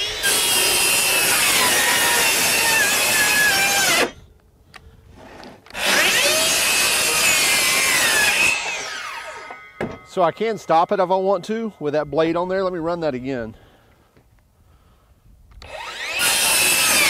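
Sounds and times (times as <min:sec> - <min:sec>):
circular saw cutting plywood: 0:00.0 - 0:04.2, 0:05.2 - 0:09.6, 0:15.6 - 0:17.0.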